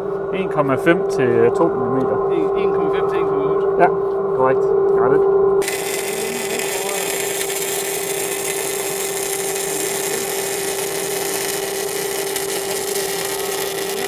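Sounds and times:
constant low hum: 0:00.0 - 0:14.0
welding arc hissing: 0:05.6 - 0:14.0.

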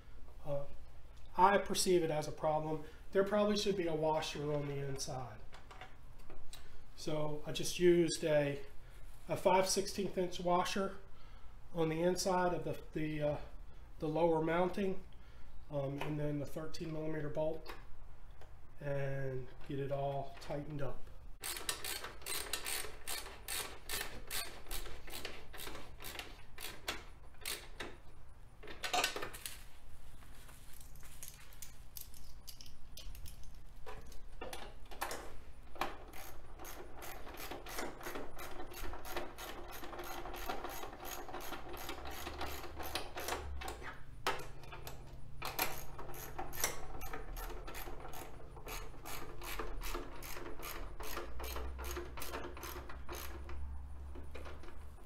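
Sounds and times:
socket ratchet clicking: 0:21.4 - 0:28.0, 0:36.1 - 0:43.8, 0:45.4 - 0:53.6.

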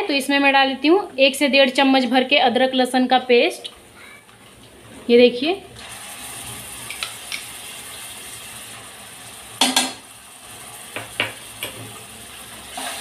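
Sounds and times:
paste sizzling in hot oil: 0:05.8 - 0:13.0
metal spoon knocking on pan: 0:09.6 - 0:10.0, 0:11.0 - 0:11.8.

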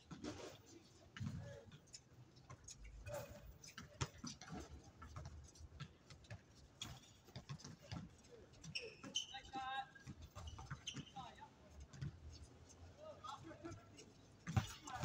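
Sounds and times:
shoes on hard court: 0:00.0 - 0:15.0
basketball bouncing: 0:14.4 - 0:15.0.

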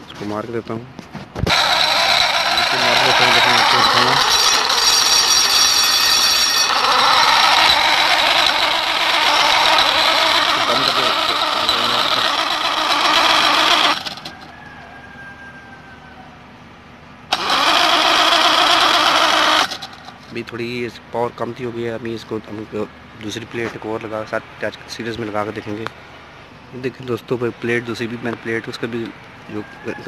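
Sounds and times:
angle grinder whine: 0:01.5 - 0:14.6, 0:17.3 - 0:20.4.

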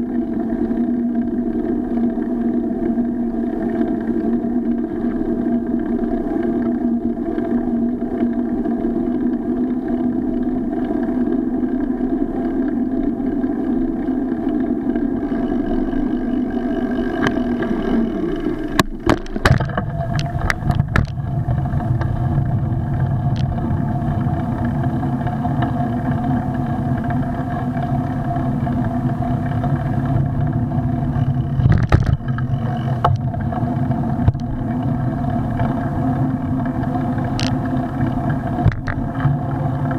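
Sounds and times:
riding drone with hum: 0:00.0 - 0:39.9.

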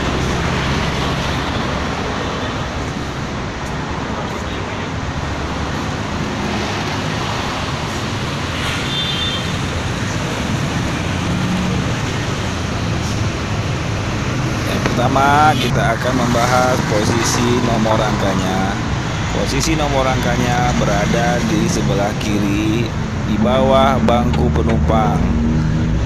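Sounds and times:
road traffic noise: 0:00.0 - 0:26.0
low engine hum: 0:09.8 - 0:26.0.

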